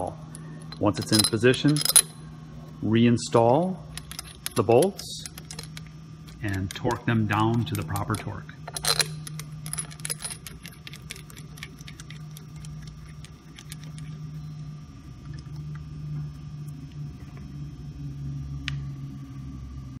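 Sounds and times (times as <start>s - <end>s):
steady low hum: 0.0s - 20.0s
metallic clicks of bolts turning: 4.0s - 12.4s.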